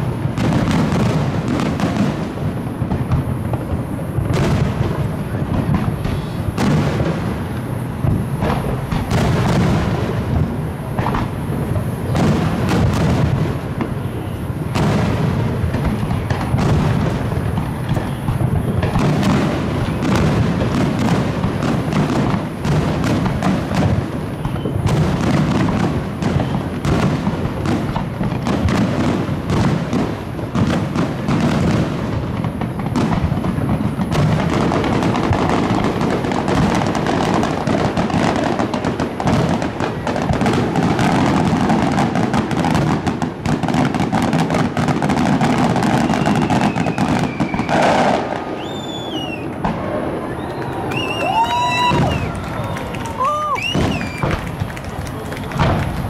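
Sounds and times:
fireworks shell bursts barrage: 0:53.2 - 0:54.7.

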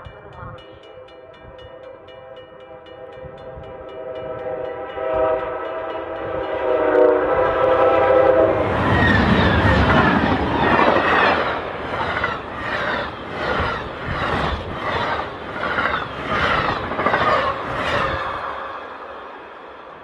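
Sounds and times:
crossing bells ringing: 0:00.0 - 0:14.0
train passing rush: 0:00.0 - 0:20.0
locomotive horn: 0:03.0 - 0:09.2.

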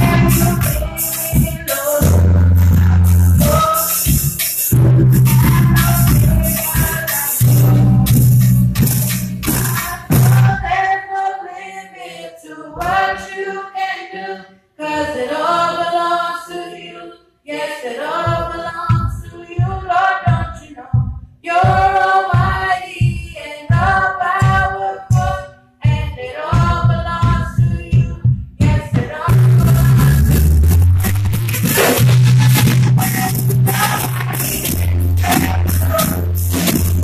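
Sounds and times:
band low beat: 0:00.0 - 0:10.8, 0:18.3 - 0:37.0
voices singing gospel song: 0:00.0 - 0:37.0.

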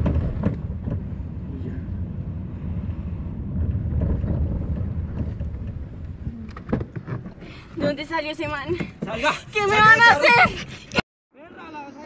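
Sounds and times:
car driving rumble: 0:00.0 - 0:11.0
wind buffeting microphone: 0:00.0 - 0:11.0.

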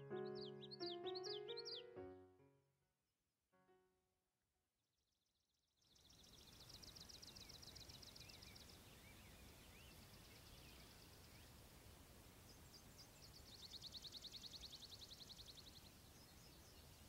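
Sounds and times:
bird chirping: 0:00.0 - 0:02.1, 0:05.8 - 0:11.8, 0:12.4 - 0:17.0
soft hiss: 0:06.3 - 0:17.0.

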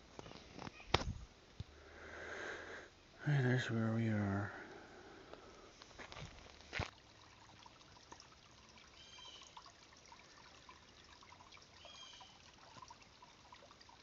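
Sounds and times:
creek trickling: 0:01.6 - 0:14.0.

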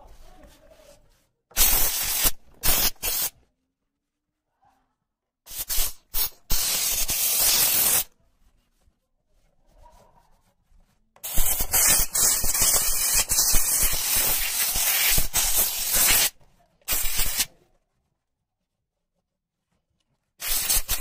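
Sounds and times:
steam cleaner hissing jets: 0:11.2 - 0:16.3, 0:16.9 - 0:17.5, 0:20.4 - 0:21.0.

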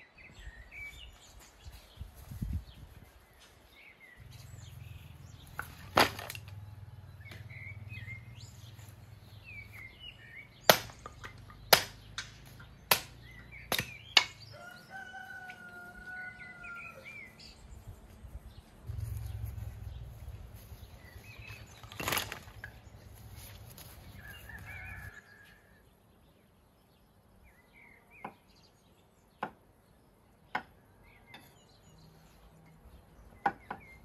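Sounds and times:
small birds chirping: 0:00.0 - 0:34.0
axe chopping firewood: 0:05.6 - 0:06.6, 0:10.6 - 0:14.4, 0:21.4 - 0:22.7.

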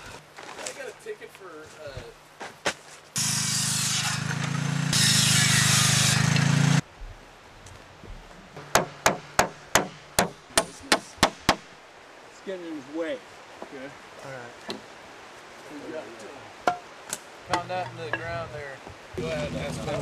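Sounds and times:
power saw running: 0:03.2 - 0:06.8
hammer striking nails into wood: 0:08.6 - 0:11.7.

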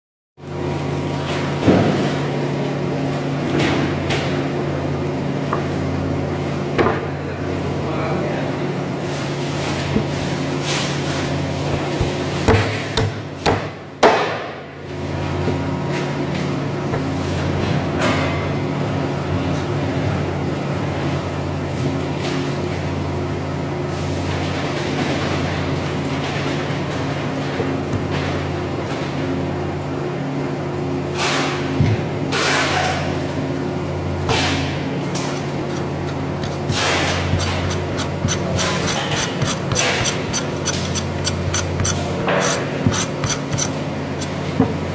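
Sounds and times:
low mechanical hum: 0:00.4 - 0:44.9
cleaver chopping on cutting board: 0:11.6 - 0:14.4, 0:36.4 - 0:44.4.

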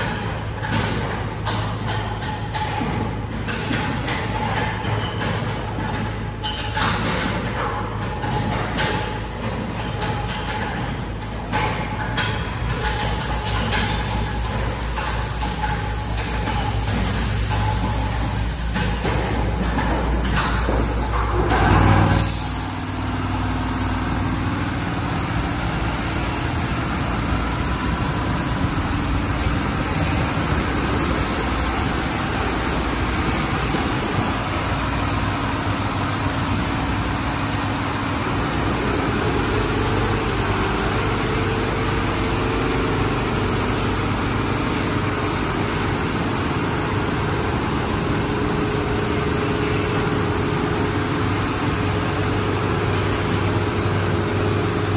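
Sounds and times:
machine hum: 0:12.6 - 0:54.9
water and foam spraying: 0:12.7 - 0:54.9.

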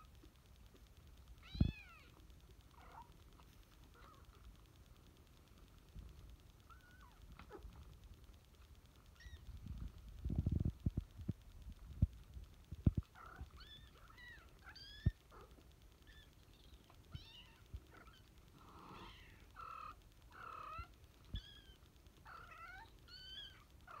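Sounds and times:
kittens mewing: 0:12.9 - 0:24.0.

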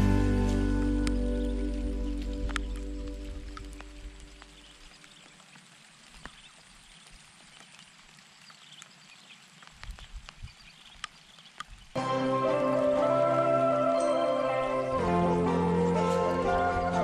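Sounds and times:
small ticks and chirps: 0:01.0 - 0:12.0.

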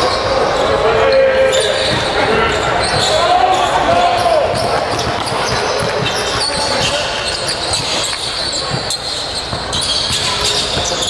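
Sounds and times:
hubbub of voices: 0:00.0 - 0:11.0
sneakers squeaking: 0:00.0 - 0:11.0
basketball bouncing on court: 0:01.8 - 0:11.0.

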